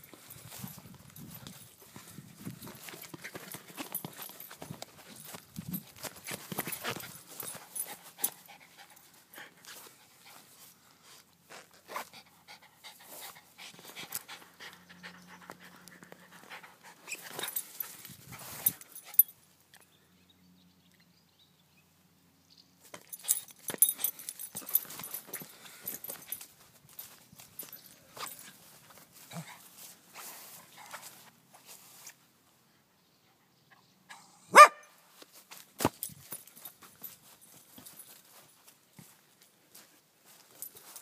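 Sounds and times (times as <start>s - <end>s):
scuffs and knocks on grass: 0.4s - 8.3s, 35.2s - 39.2s
small dog panting: 12.0s - 17.5s.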